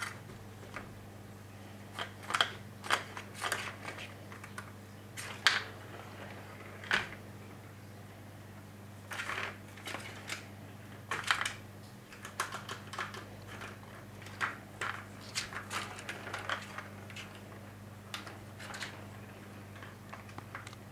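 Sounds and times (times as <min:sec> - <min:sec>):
steady low hum: 0:00.0 - 0:20.9
plastic ball toy clicking and rattling: 0:11.1 - 0:17.4.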